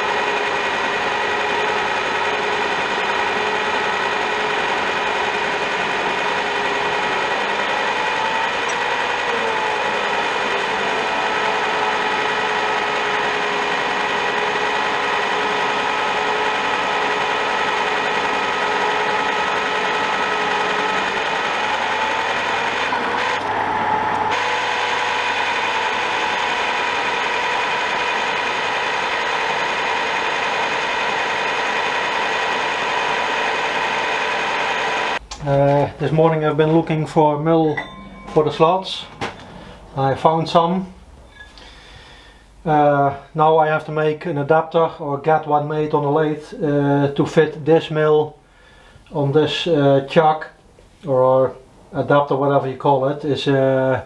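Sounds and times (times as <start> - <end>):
milling machine drone: 0.0 - 42.1.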